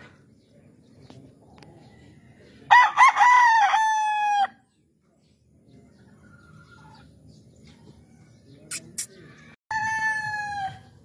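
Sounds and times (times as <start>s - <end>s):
rooster crowing: 2.7s - 4.6s, 9.3s - 11.0s.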